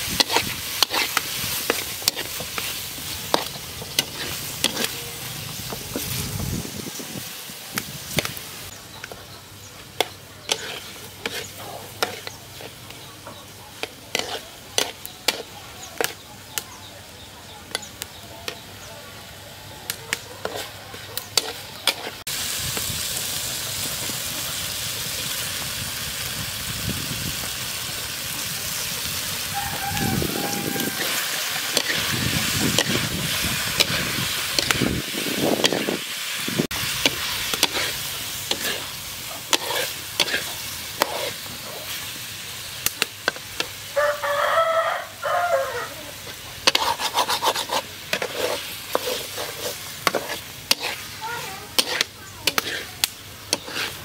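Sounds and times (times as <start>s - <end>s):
spatula scraping a wok: 0.0s - 16.3s, 20.4s - 23.1s, 28.3s - 43.9s, 46.1s - 54.0s
food sizzling in a wok: 0.0s - 54.0s
rooster crowing: 29.4s - 31.7s, 43.9s - 46.1s.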